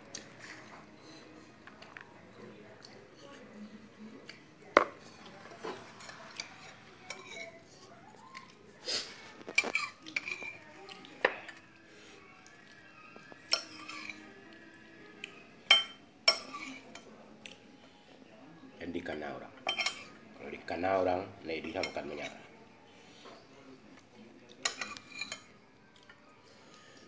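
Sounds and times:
metal spoon clinking on plates: 4.8s - 7.6s, 9.5s - 11.6s, 13.5s - 14.3s, 15.6s - 17.1s, 19.1s - 20.2s, 24.5s - 27.0s.

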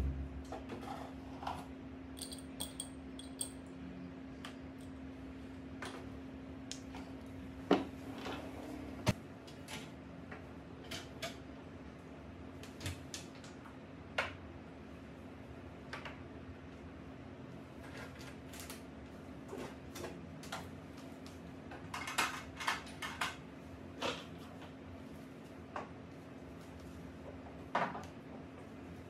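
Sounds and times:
steady low hum: 0.0s - 10.8s.

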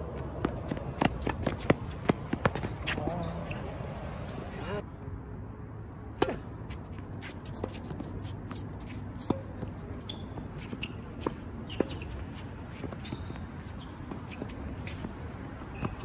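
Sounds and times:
shoes squeaking on court: 0.0s - 4.8s, 6.2s - 16.0s
tennis ball pocks: 6.2s - 6.5s.

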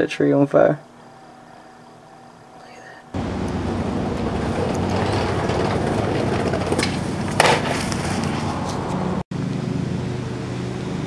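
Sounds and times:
skateboard wheels rolling on concrete: 3.2s - 9.6s
skateboard clack: 3.6s - 8.3s.

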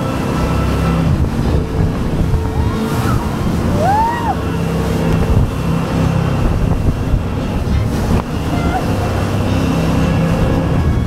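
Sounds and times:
jet boat running: 0.0s - 11.0s
water spraying: 0.0s - 11.0s
wind buffeting microphone: 0.0s - 11.0s.

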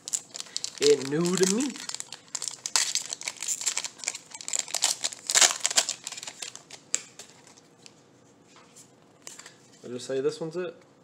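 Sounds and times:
foil wrapper crinkling and tearing: 0.0s - 7.5s.

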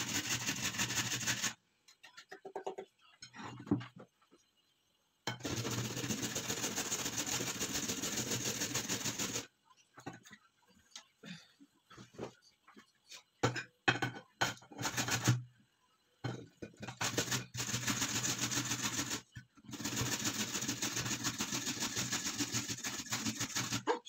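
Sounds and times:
carrot grated on metal grater: 0.0s - 1.6s, 5.4s - 9.5s, 16.8s - 23.9s.

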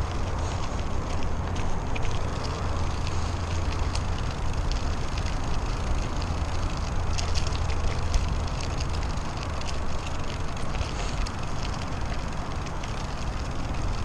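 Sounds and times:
gravel crackling under tyres: 0.0s - 14.0s
wind and ride vibration rumble: 0.0s - 14.0s.

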